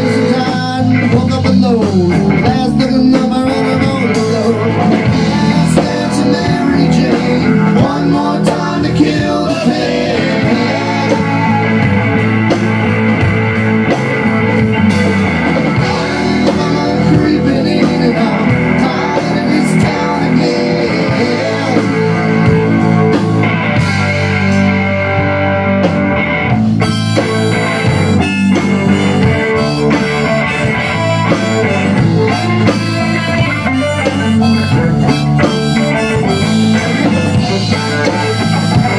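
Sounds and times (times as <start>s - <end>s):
man singing: 0.0s - 12.4s, 15.8s - 23.1s, 28.9s - 38.9s
harmonica: 0.0s - 38.9s
rock blues band playing: 0.0s - 38.9s.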